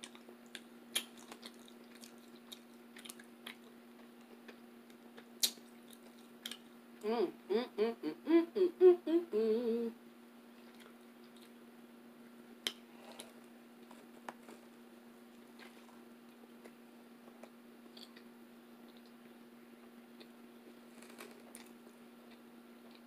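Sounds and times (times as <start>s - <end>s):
closed-mouth chewing: 0.0s - 6.7s
steady low hum: 0.0s - 23.0s
woman humming: 7.0s - 10.0s.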